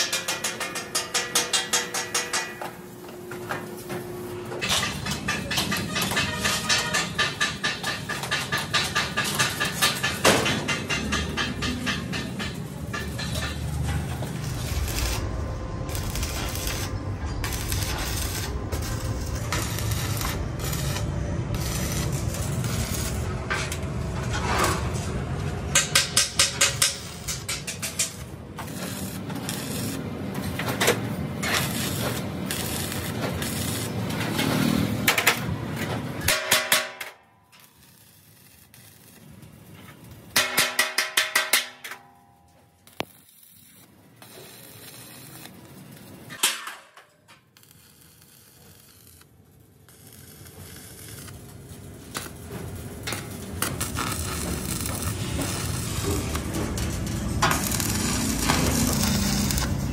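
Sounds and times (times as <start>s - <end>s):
welding arc hissing: 4.6s - 24.1s, 25.7s - 35.4s, 37.6s - 40.4s, 42.8s - 46.4s, 47.6s - 59.9s.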